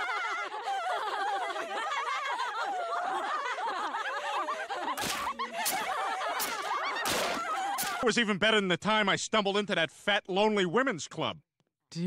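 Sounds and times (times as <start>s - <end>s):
women laughing: 0.0s - 8.0s.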